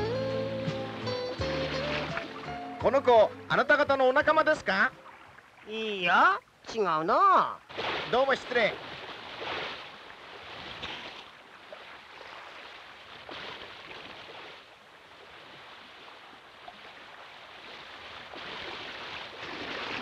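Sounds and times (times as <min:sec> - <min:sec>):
water rushing and sloshing: 0:00.0 - 0:20.0.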